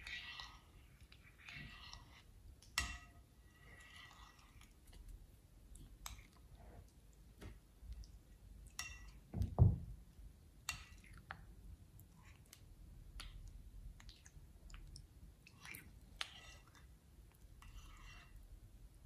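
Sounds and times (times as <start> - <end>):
slime squelching with spoon: 0.0 - 9.3, 10.6 - 18.7
low thud: 9.4 - 10.0.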